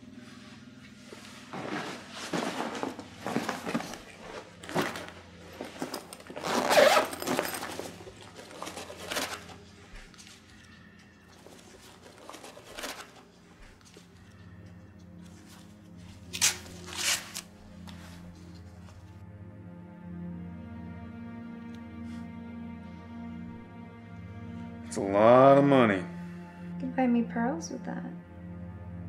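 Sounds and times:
bag fabric rustling: 1.4s - 10.7s, 11.3s - 14.2s, 15.2s - 19.0s
zipper being pulled open: 2.8s - 9.5s.

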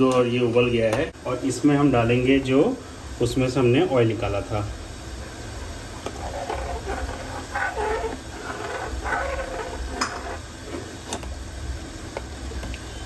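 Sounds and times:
ladle stirring milk in pan: 6.1s - 11.0s.

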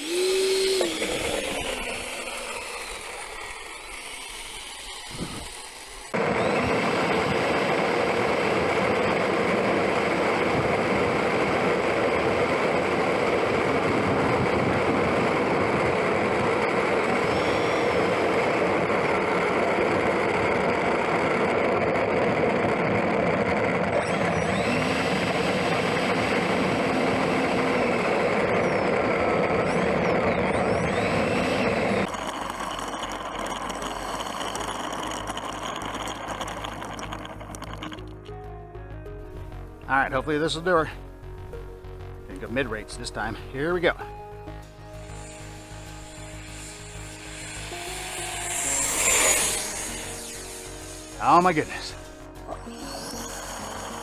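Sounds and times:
electric ducted fan whirring: 0.0s - 38.4s, 40.3s - 54.0s
faint whistles: 28.4s - 32.1s.

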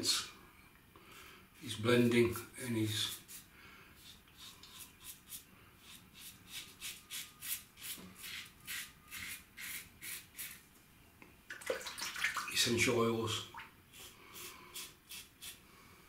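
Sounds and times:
razor scraping stubble: 4.0s - 10.6s.

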